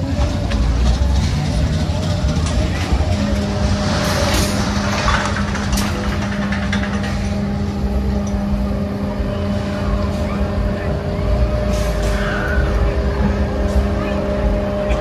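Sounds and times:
machinery humming and rumbling: 0:00.0 - 0:15.0
clicks and rattles: 0:04.3 - 0:07.6.

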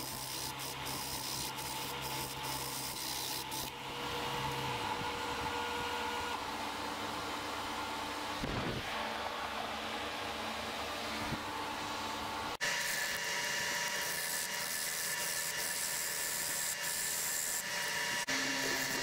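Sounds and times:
gouge scraping spinning wood: 0:00.0 - 0:03.8, 0:12.6 - 0:19.0
wood lathe running: 0:12.6 - 0:19.0.

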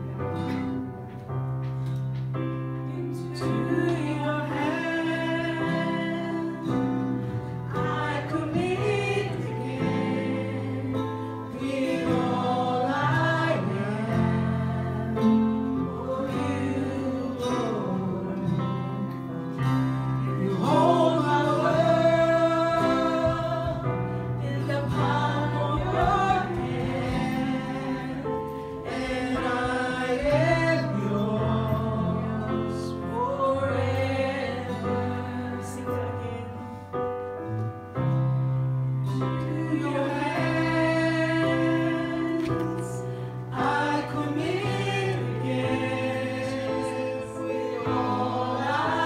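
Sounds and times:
instrumental backing: 0:00.0 - 0:49.0
woman singing into a microphone: 0:02.9 - 0:10.7, 0:20.3 - 0:28.1.

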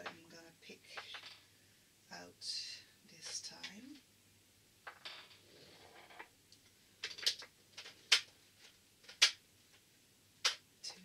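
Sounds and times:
plastic bottles clicking together: 0:07.0 - 0:08.3.

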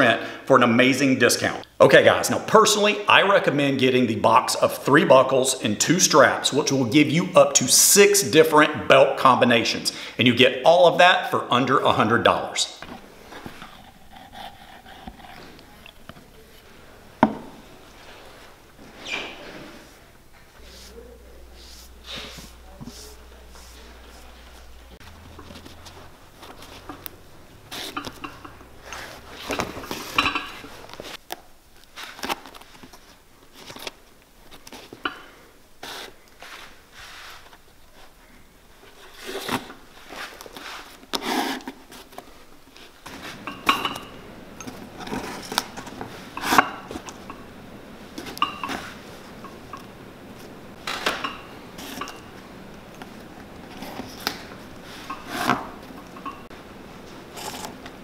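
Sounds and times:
metal pick scraping leather: 0:13.3 - 0:16.4, 0:25.0 - 0:31.2, 0:57.2 - 0:57.9.

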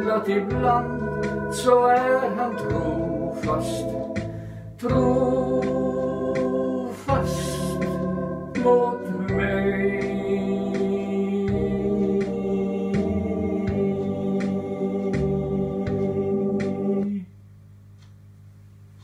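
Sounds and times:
ticking percussion: 0:00.0 - 0:17.1
sustained organ chords: 0:00.0 - 0:17.2
faint hum: 0:00.0 - 0:19.0.

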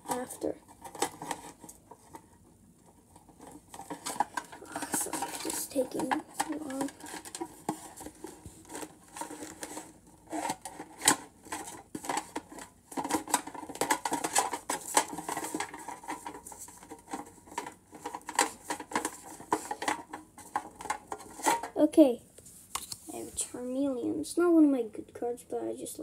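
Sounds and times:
card stock rustling: 0:03.4 - 0:21.7.

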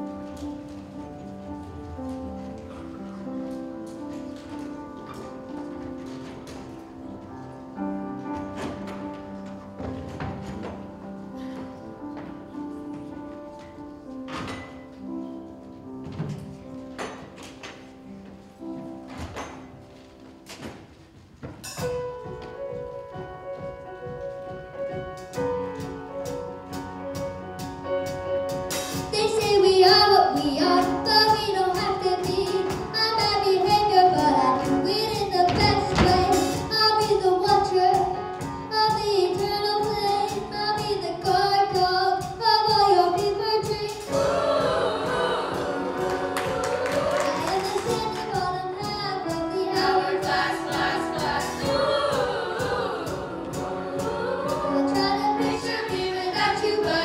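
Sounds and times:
band with piano and guitar: 0:00.0 - 0:57.0
choir singing: 0:43.9 - 0:48.6, 0:49.2 - 0:57.0.

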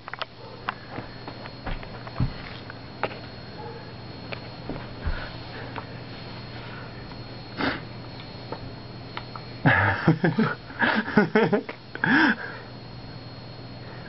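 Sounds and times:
person sniffing and puffing: 0:07.6 - 0:07.9.

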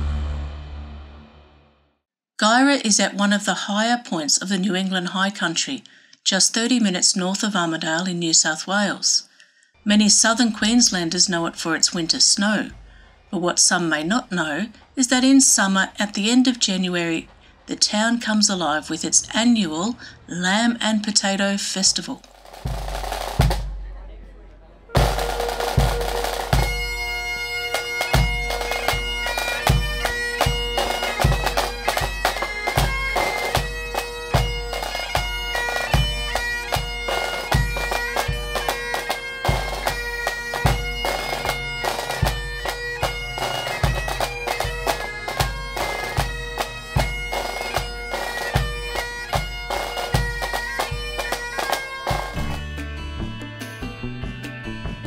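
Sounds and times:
snare drums: 0:22.2 - 0:23.9, 0:25.0 - 0:27.1, 0:27.7 - 0:36.0, 0:36.7 - 0:52.7
bass drum beat: 0:22.4 - 0:24.0, 0:25.0 - 0:27.2, 0:27.8 - 0:38.9, 0:52.0 - 0:55.0
bagpipes playing over drone: 0:25.0 - 0:52.8.

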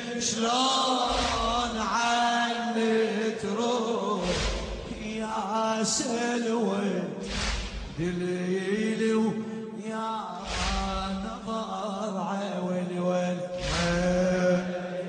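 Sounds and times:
man chanting: 0:00.0 - 0:15.0
heavy drum beat: 0:01.1 - 0:02.0, 0:04.2 - 0:05.3, 0:07.2 - 0:08.2, 0:10.6 - 0:11.4, 0:13.6 - 0:14.4.

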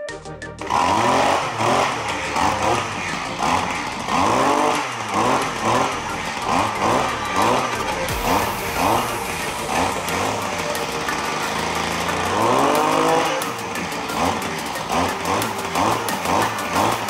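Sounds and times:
two-stroke engine revving: 0:00.6 - 0:17.0.

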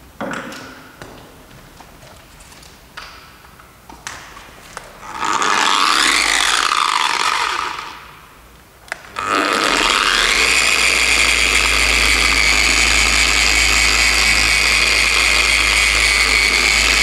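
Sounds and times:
electric machine polisher running: 0:05.0 - 0:08.1, 0:08.9 - 0:17.0.

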